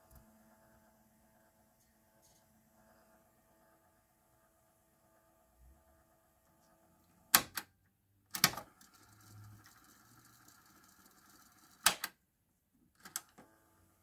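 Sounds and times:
tape winding whir: 8.4 - 12.0.

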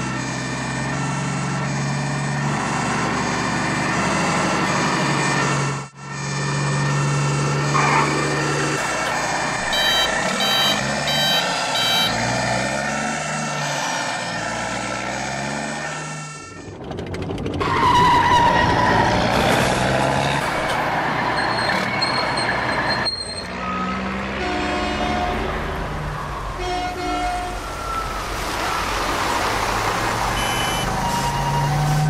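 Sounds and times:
rough truck engine: 0.0 - 32.0
short high beeps: 9.6 - 12.2, 30.4 - 30.9.

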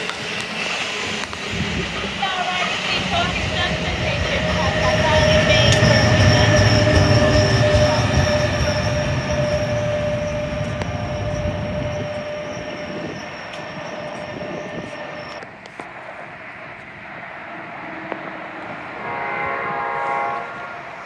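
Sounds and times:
wheel squeal: 0.0 - 15.5
train rumbling past: 0.0 - 21.0.

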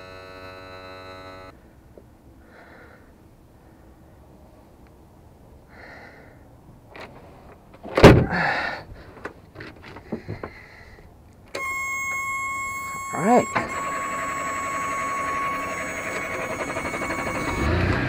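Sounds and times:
high-pitched electronic buzzer: 0.0 - 1.5, 11.6 - 18.0
loud thump: 7.9 - 8.4.

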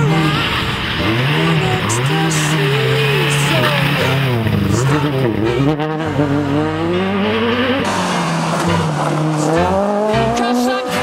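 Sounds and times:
rally car approaching: 0.0 - 11.0
rally car engine revving: 0.0 - 11.0.

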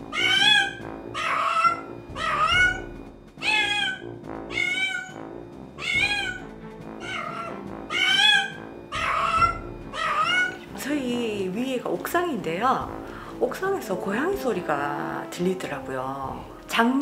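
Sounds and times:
cat meowing: 0.0 - 5.2, 5.8 - 10.7
background music: 0.0 - 17.0.

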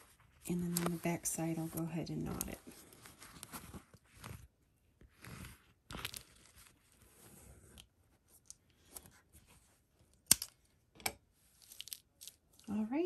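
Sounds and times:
thread drawn through fabric: 0.0 - 7.8.

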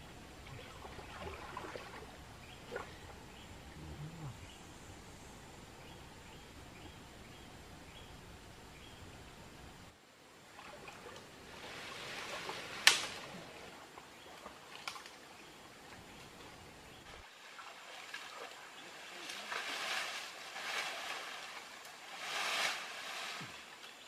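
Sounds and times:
water sloshing and splashing: 0.5 - 3.0, 10.5 - 15.2, 17.2 - 23.6.

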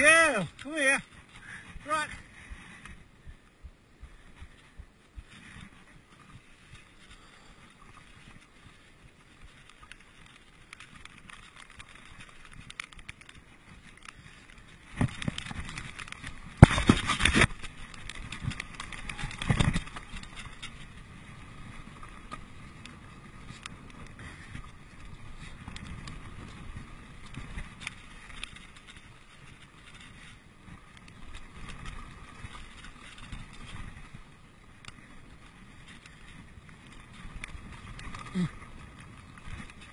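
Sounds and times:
bike tyres rolling on dirt: 0.0 - 39.9
bike rattling over bumps: 9.4 - 39.9.

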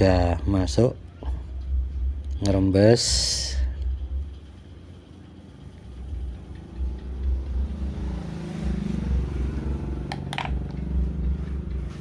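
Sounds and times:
vehicle engine running: 3.9 - 12.0.

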